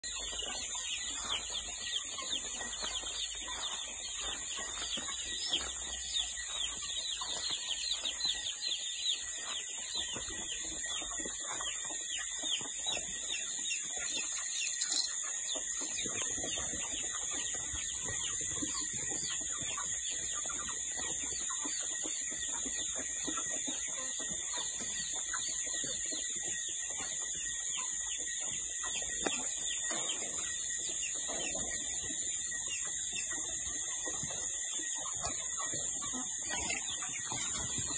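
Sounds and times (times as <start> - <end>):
chicks peeping: 0.0 - 37.9.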